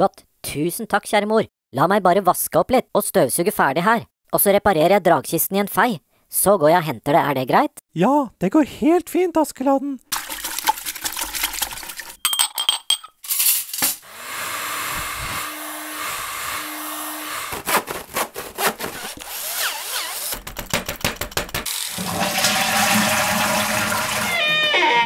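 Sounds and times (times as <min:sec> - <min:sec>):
dishes clinking: 0:12.2 - 0:13.2
vacuum cleaner running: 0:14.0 - 0:17.8, 0:21.9 - 0:24.3
sawing wood: 0:14.0 - 0:20.5.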